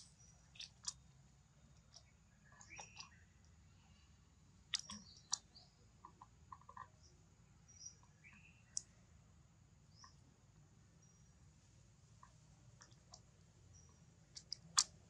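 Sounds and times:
high bird chirps: 2.0s - 3.2s.

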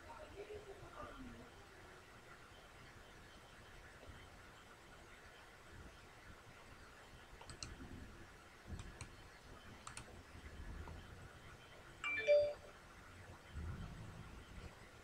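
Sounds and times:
computer mouse clicks: 7.4s - 7.9s, 8.7s - 10.2s
electronic chime: 12.0s - 12.6s.

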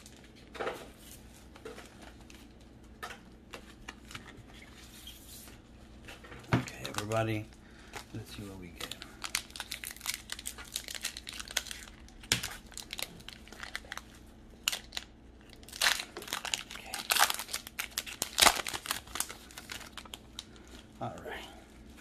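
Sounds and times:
foil wrapper crinkling and tearing: 6.7s - 21.0s.

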